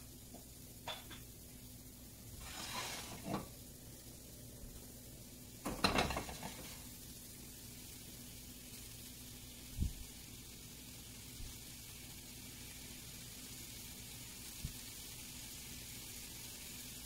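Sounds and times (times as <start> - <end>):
hot oil sizzling in a pan: 0.0 - 17.0
pan clattering on burner grate: 0.8 - 1.3, 2.4 - 3.6, 5.6 - 6.9.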